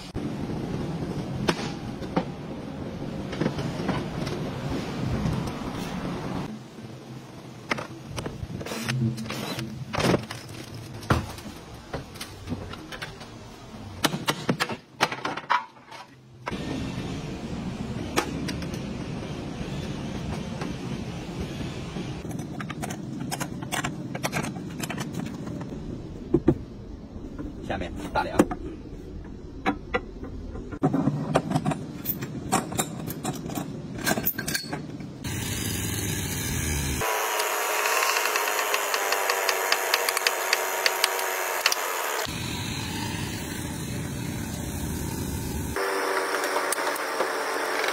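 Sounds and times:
steady mechanical hum: 0:00.0 - 0:47.9.

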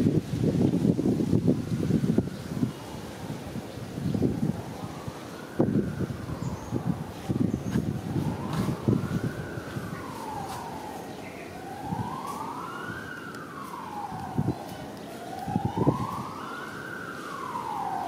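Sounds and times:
siren wailing: 0:04.3 - 0:18.0.

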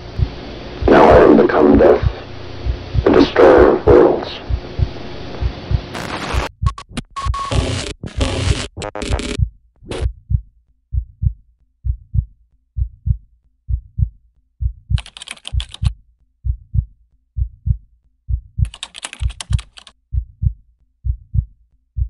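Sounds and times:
heartbeat thumps: 0:00.0 - 0:22.0
fast crackling static: 0:00.9 - 0:10.0.

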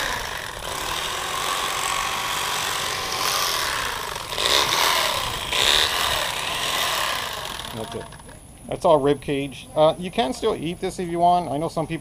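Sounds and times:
electric fillet knife cutting: 0:00.0 - 0:08.0.

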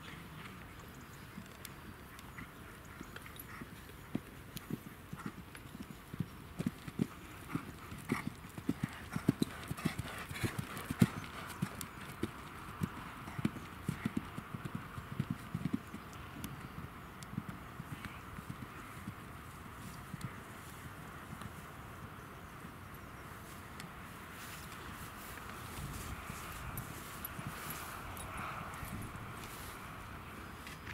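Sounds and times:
horse hooves on turf: 0:23.4 - 0:30.9.

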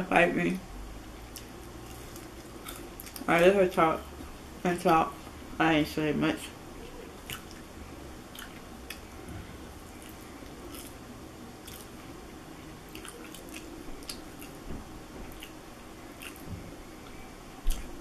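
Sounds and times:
low room hum: 0:00.0 - 0:18.0
person chewing: 0:01.1 - 0:03.3, 0:07.0 - 0:07.7, 0:08.3 - 0:09.1, 0:09.9 - 0:14.6, 0:15.2 - 0:18.0.

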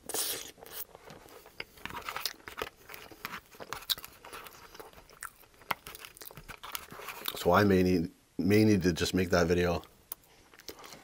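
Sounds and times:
chewing: 0:00.1 - 0:07.4, 0:10.1 - 0:11.0.

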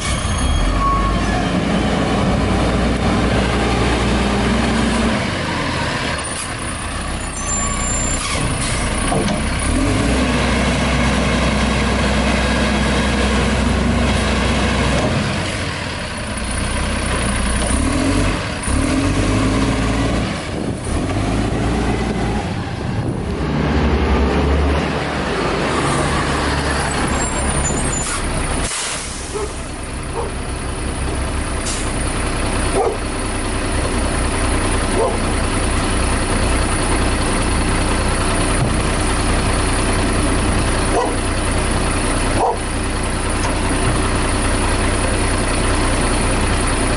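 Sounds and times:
garbage truck engine running: 0:00.0 - 0:46.9
air brakes hissing: 0:27.8 - 0:29.6.

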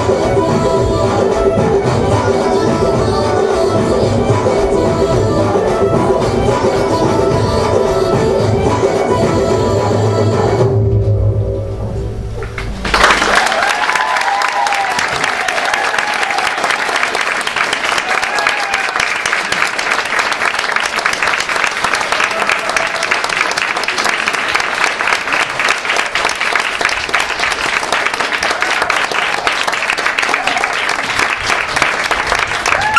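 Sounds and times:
audience applauding: 0:12.6 - 0:32.9
people cheering: 0:12.8 - 0:32.9.

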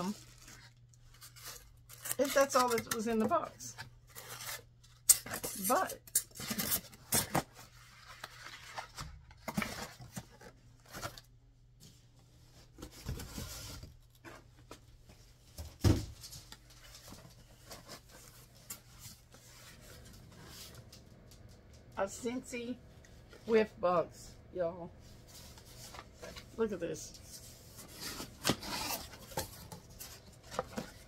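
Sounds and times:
packaging rustling and tearing: 0:00.0 - 0:03.0, 0:27.2 - 0:31.0.

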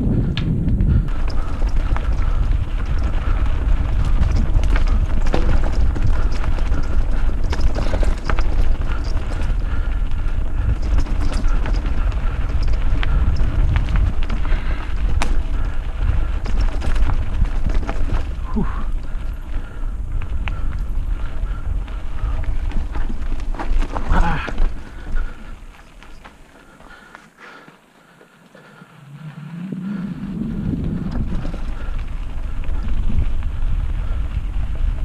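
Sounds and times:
wind on microphone: 0:00.0 - 0:25.8, 0:28.8 - 0:35.0
bike rattling and knocking: 0:00.0 - 0:35.0
bike tyres rumbling: 0:00.0 - 0:35.0.

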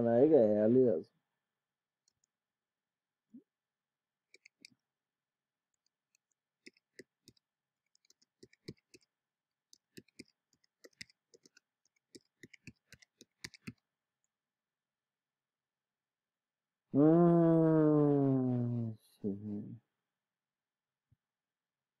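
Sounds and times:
faint keyboard typing: 0:06.1 - 0:09.1, 0:09.7 - 0:13.8.

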